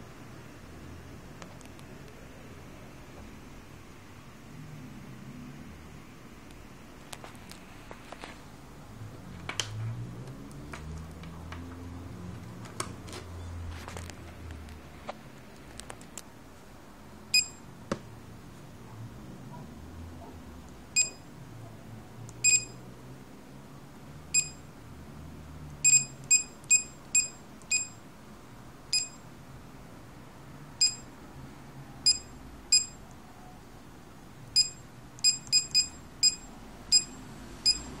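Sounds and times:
touch-screen key beeps: 0:17.4 - 0:17.6, 0:21.0 - 0:21.2, 0:22.4 - 0:22.8, 0:24.4 - 0:24.6, 0:25.9 - 0:28.0, 0:28.9 - 0:29.2, 0:30.8 - 0:31.1, 0:32.1 - 0:33.0, 0:34.6 - 0:37.9.

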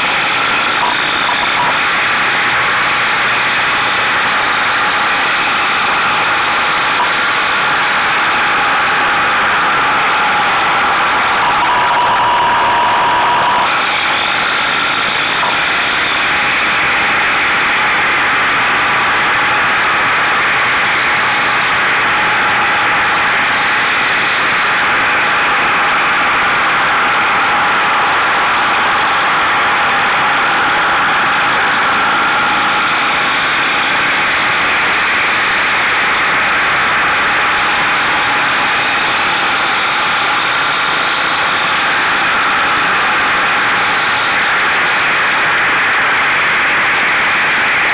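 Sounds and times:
motorcycle engine at speed: 0:00.0 - 0:47.9.

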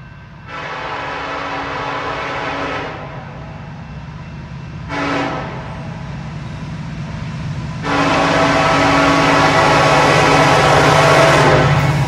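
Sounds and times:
train rumbling: 0:00.0 - 0:12.0
locomotive horn blasts: 0:00.5 - 0:03.4, 0:04.8 - 0:05.7, 0:07.8 - 0:11.9.

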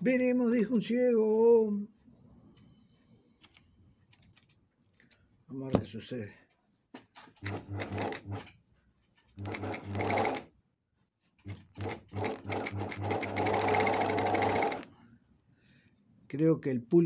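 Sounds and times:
sewing machine stitching: 0:07.4 - 0:08.6, 0:09.3 - 0:10.5, 0:11.4 - 0:14.9.

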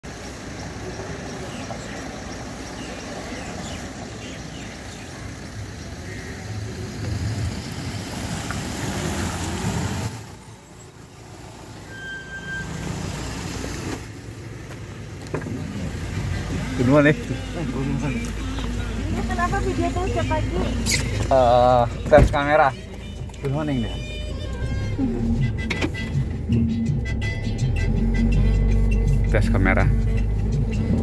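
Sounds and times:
rumble of passing traffic: 0:00.0 - 0:31.0
short high beep: 0:11.9 - 0:12.7.

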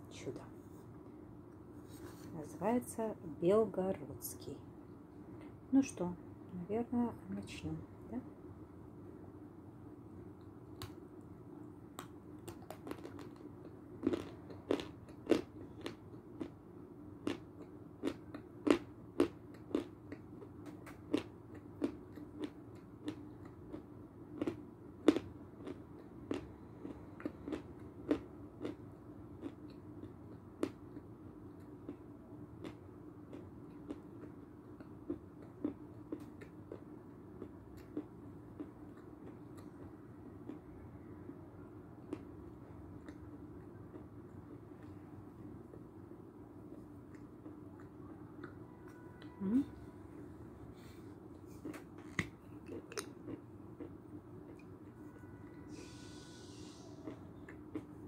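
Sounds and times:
faint steady hum: 0:00.0 - 0:58.0
chalk being chewed crunching: 0:12.5 - 0:16.5, 0:17.2 - 0:28.8, 0:29.4 - 0:32.0, 0:51.6 - 0:53.9, 0:56.6 - 0:58.0.

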